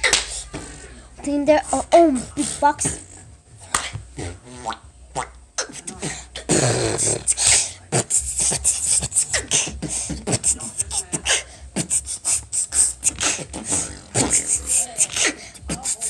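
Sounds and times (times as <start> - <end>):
person beatboxing: 4.6 - 16.0.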